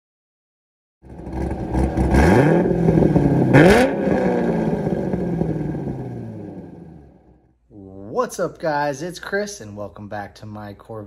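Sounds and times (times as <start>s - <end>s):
car engine revving: 1.0s - 7.4s.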